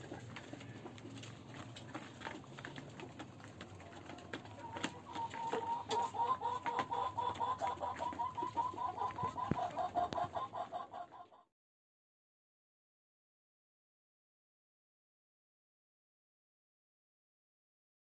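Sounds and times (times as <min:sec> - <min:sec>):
beaks pecking plastic feeder: 0:00.0 - 0:10.6
hens clucking rapidly: 0:00.0 - 0:11.5.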